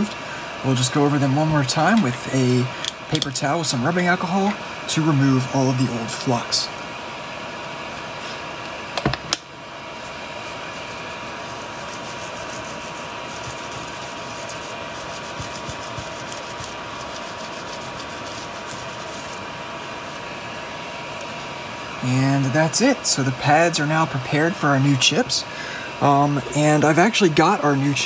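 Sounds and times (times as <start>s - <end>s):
fan whir with thin whine: 0.0s - 28.0s
paper towel scrubbing circuit board: 9.8s - 20.4s.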